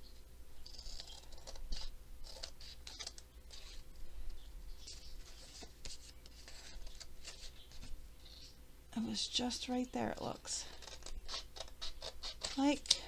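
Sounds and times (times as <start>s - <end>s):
scissors snipping paper: 10.7s - 13.0s.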